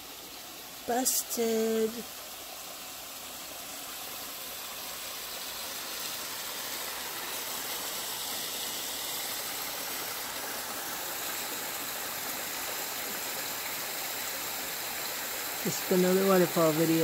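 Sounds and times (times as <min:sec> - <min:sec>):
rush of falling water: 0:00.0 - 0:17.0.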